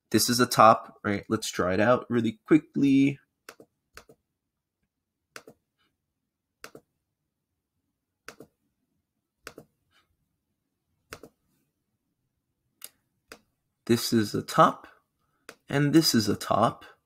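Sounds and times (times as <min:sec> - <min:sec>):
computer mouse double clicks: 0:11.1 - 0:11.3.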